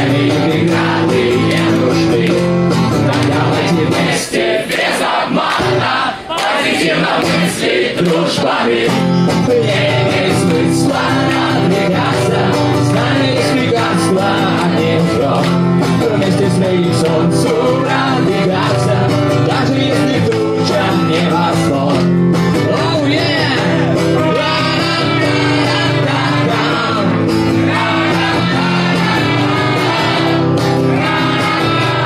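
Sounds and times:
drum beat: 0:00.0 - 0:03.7, 0:22.6 - 0:32.0
bass line: 0:00.0 - 0:04.2, 0:08.9 - 0:32.0
man singing into microphone: 0:00.0 - 0:04.3, 0:07.9 - 0:29.2
acoustic guitar strumming: 0:00.0 - 0:04.5, 0:06.8 - 0:32.0.

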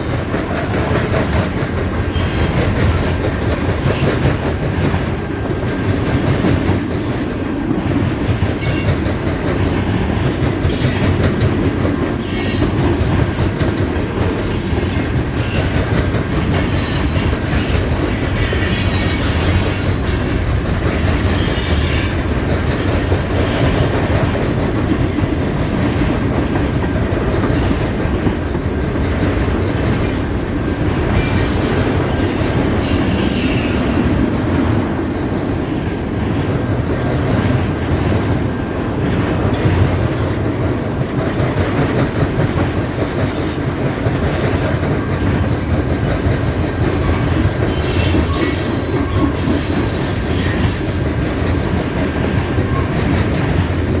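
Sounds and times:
train wheels rumbling on rails: 0:00.0 - 0:54.0.

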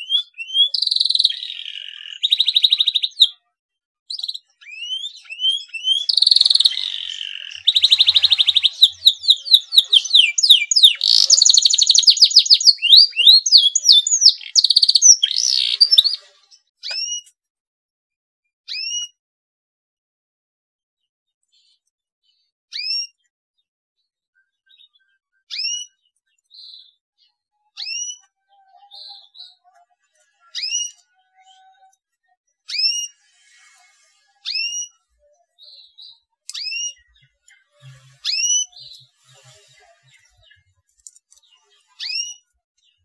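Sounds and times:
whistled canary chirps: 0:00.0 - 0:03.4, 0:04.1 - 0:17.3, 0:18.7 - 0:19.2, 0:22.7 - 0:23.3, 0:24.7 - 0:26.0, 0:27.7 - 0:29.6, 0:30.5 - 0:31.6, 0:32.6 - 0:33.8, 0:34.4 - 0:35.1, 0:35.7 - 0:40.6, 0:41.6 - 0:42.5.

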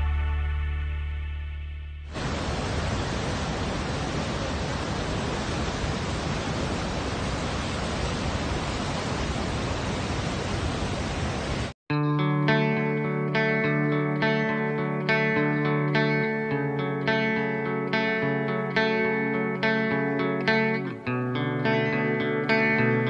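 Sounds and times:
background music: 0:00.0 - 0:02.1, 0:11.9 - 0:23.0
waterfall rushing: 0:02.1 - 0:11.8.

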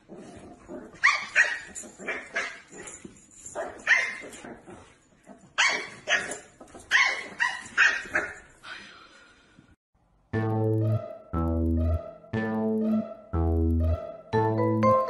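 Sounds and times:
puppy barking high-pitched: 0:01.0 - 0:02.6, 0:03.6 - 0:04.2, 0:05.6 - 0:08.4.

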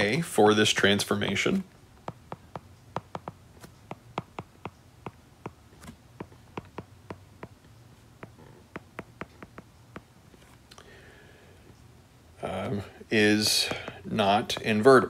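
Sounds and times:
faint low hum: 0:00.0 - 0:15.0
stylus tapping on glass screen: 0:02.0 - 0:05.6, 0:06.2 - 0:07.6, 0:08.2 - 0:10.1, 0:13.4 - 0:14.8.

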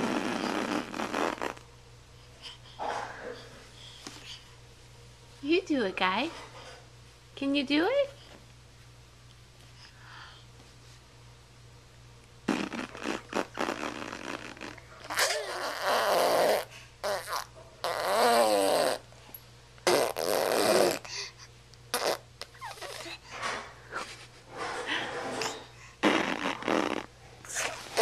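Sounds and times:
baby blowing raspberries: 0:00.0 - 0:01.6, 0:12.4 - 0:19.2, 0:19.8 - 0:24.1, 0:25.2 - 0:28.0.

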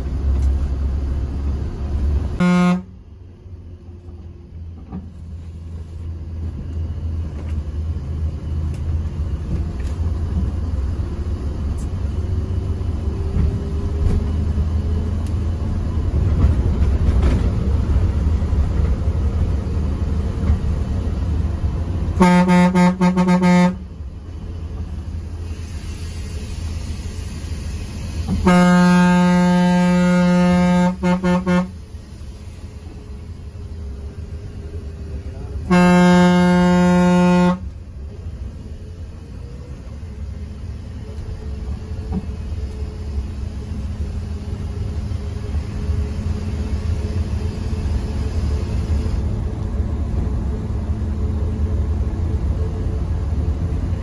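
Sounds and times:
bus engine and road rumble: 0:00.0 - 0:54.0
bus horn: 0:02.4 - 0:03.1, 0:22.1 - 0:24.0, 0:28.3 - 0:31.9, 0:35.5 - 0:37.8.

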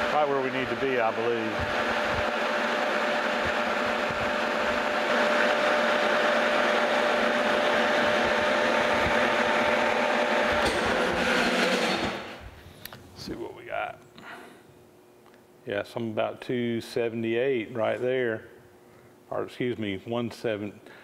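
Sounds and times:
metal lathe running: 0:00.0 - 0:12.4
thin steady whine: 0:00.0 - 0:21.0.

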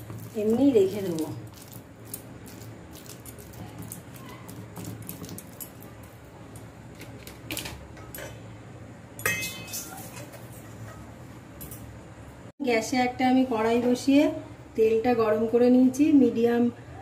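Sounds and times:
steel kitchenware clinking: 0:09.2 - 0:11.9.

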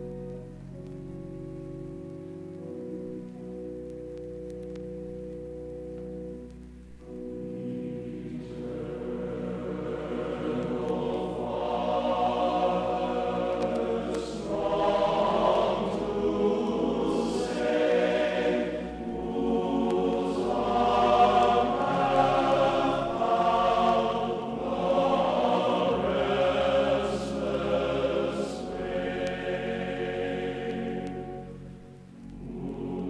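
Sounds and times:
slow choral music: 0:00.0 - 0:33.0.

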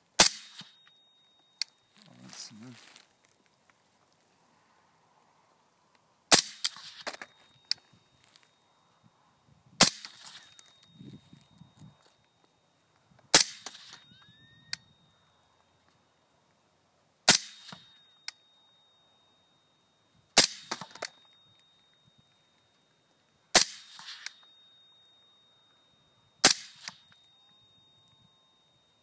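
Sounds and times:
suppressed rifle shots: 0:00.2 - 0:00.8, 0:09.8 - 0:10.5, 0:13.3 - 0:14.0, 0:17.3 - 0:17.9, 0:20.4 - 0:21.1, 0:23.5 - 0:24.4, 0:26.4 - 0:27.1.

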